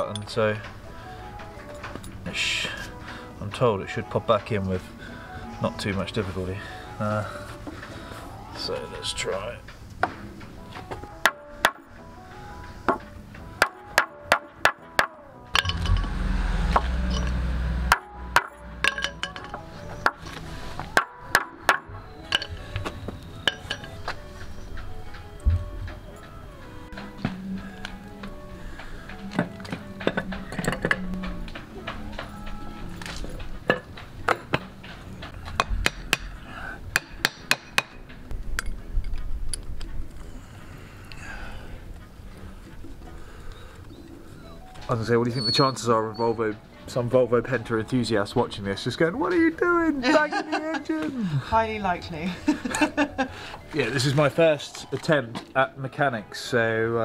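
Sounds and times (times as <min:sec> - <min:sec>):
hammer tapping metal: 0:12.9 - 0:20.2, 0:35.6 - 0:38.1
steady low rumble: 0:15.6 - 0:19.0.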